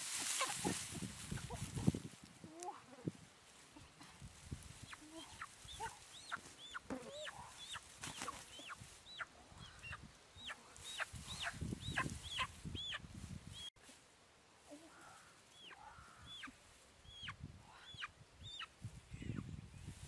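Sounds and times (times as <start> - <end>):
dry grass rustling: 0.0 - 17.5
chicken peeping: 4.8 - 13.7, 15.6 - 16.5, 17.1 - 19.6.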